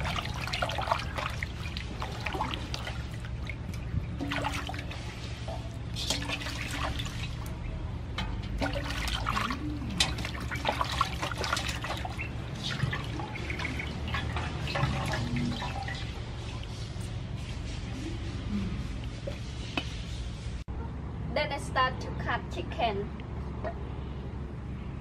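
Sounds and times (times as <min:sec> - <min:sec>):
water dripping: 0:00.0 - 0:16.8
water splashing in a metal basin: 0:00.0 - 0:17.1.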